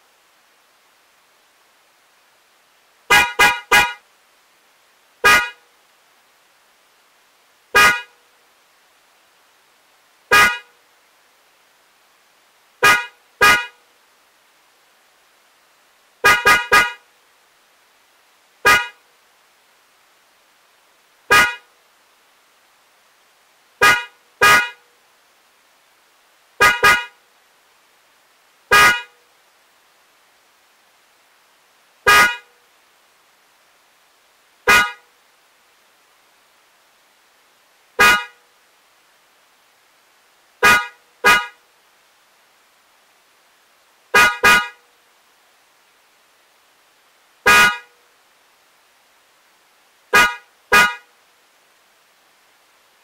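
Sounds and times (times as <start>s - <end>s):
car horn toots: 3.1s - 4.0s, 5.2s - 5.6s, 7.8s - 8.2s, 10.3s - 10.7s, 12.8s - 13.8s, 16.2s - 17.1s, 18.6s - 19.0s, 21.3s - 21.7s, 23.8s - 24.8s, 26.6s - 27.2s, 28.7s - 29.2s, 32.1s - 32.5s, 34.7s - 35.1s, 38.0s - 38.4s, 40.6s - 41.6s, 44.2s - 44.8s, 47.5s - 47.9s, 50.1s - 51.1s.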